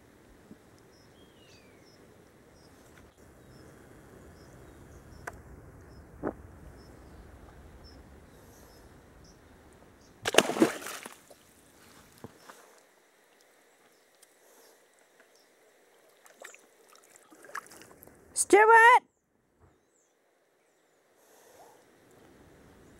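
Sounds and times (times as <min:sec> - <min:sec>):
loud splashing in water: 0:10.2 - 0:11.3.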